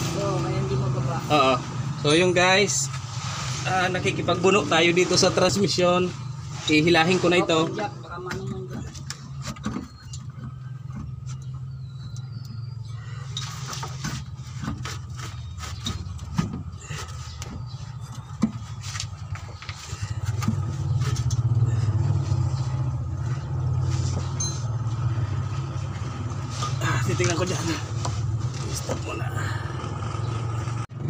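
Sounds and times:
low motor hum: 0:00.0 - 0:31.0
metallic clinks and knocks: 0:24.3 - 0:25.1.

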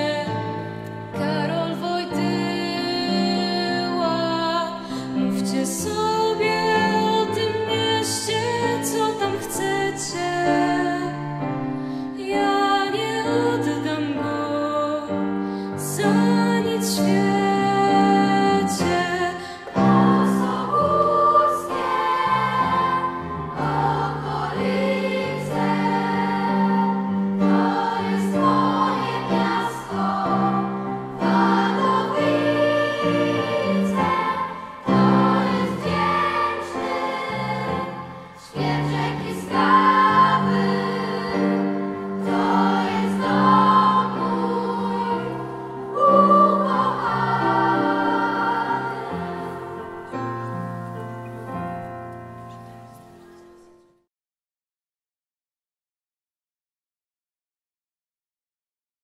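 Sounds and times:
children's choir singing: 0:00.0 - 0:11.3, 0:15.8 - 0:51.6
piano accompaniment: 0:00.0 - 0:54.0.

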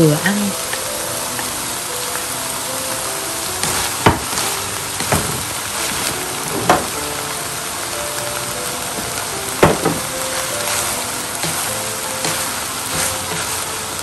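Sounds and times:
food sizzling in pan: 0:00.0 - 0:14.0
quiet background music: 0:00.0 - 0:14.0
wooden spatula knocking pan: 0:03.6 - 0:07.0, 0:09.6 - 0:13.7.

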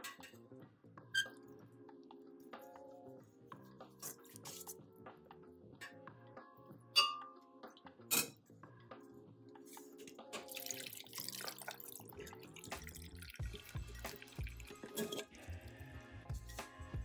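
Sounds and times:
faint background music: 0:00.0 - 0:17.0
metal spoon clinking on steel bowl: 0:07.0 - 0:07.4
liquid pouring and splashing: 0:09.8 - 0:15.7.

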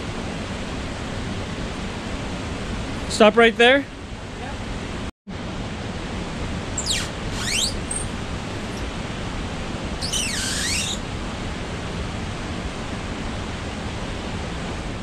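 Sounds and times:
high sliding squeaks: 0:06.8 - 0:08.9, 0:10.0 - 0:11.1.

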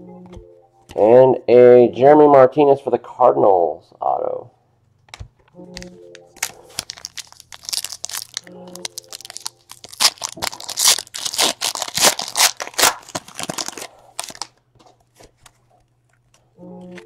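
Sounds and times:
cards being handled: 0:05.1 - 0:17.0
foil wrapper tearing and crinkling: 0:06.4 - 0:14.6.

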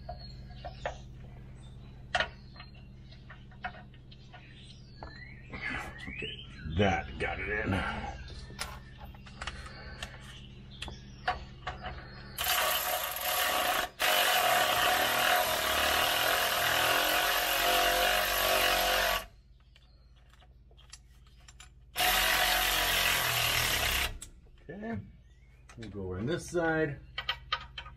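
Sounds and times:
air ratchet whirring: 0:12.4 - 0:19.3, 0:22.0 - 0:24.3.

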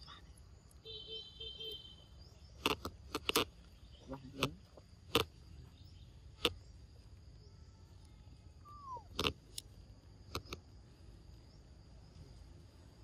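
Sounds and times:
faint insect hum: 0:00.0 - 0:13.0
sharp clicks: 0:02.6 - 0:03.6, 0:09.1 - 0:09.7, 0:10.3 - 0:10.6.

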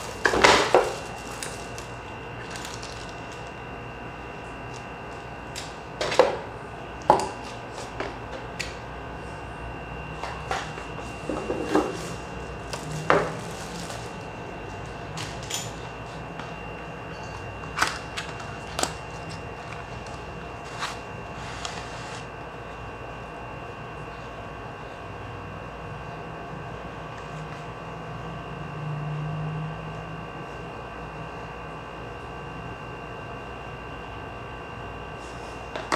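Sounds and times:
packaging knocks and rustles: 0:00.0 - 0:03.5
low background hum: 0:00.0 - 0:35.9.

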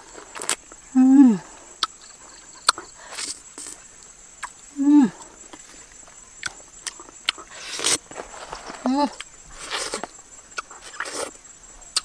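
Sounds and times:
high insect drone: 0:00.0 - 0:12.0
person humming: 0:00.9 - 0:01.6, 0:04.8 - 0:05.4.

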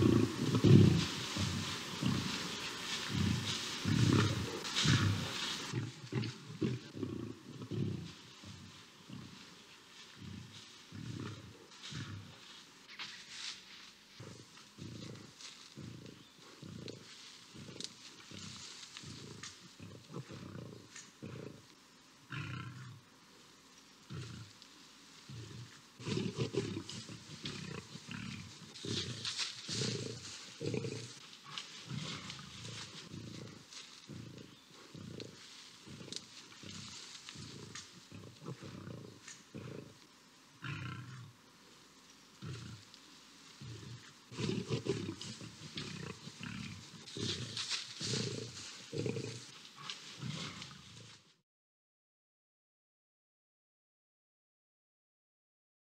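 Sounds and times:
lions growling: 0:00.0 - 0:12.5, 0:14.1 - 0:21.7, 0:24.0 - 0:24.6, 0:25.2 - 0:41.4, 0:42.3 - 0:51.2.

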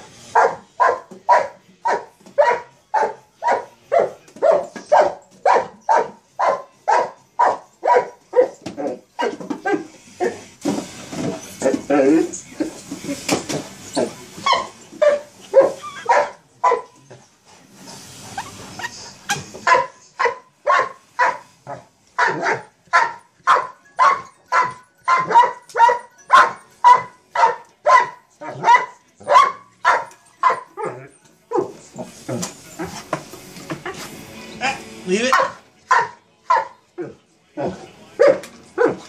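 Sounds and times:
dog barking: 0:00.4 - 0:08.6, 0:14.5 - 0:17.0, 0:19.6 - 0:31.7, 0:35.3 - 0:36.8, 0:38.2 - 0:39.0.

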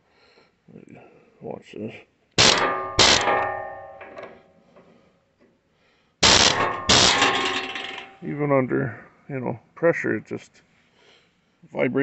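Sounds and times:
air chisel hammering bolt: 0:02.4 - 0:04.3, 0:06.2 - 0:08.1
steel ringing: 0:02.4 - 0:04.3, 0:06.2 - 0:08.3.

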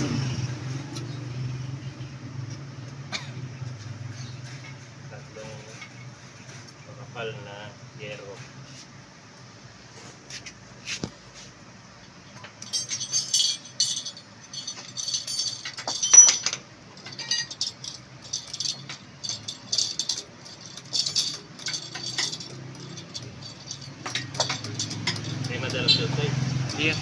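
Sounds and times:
metal clinks and taps: 0:12.3 - 0:27.0.

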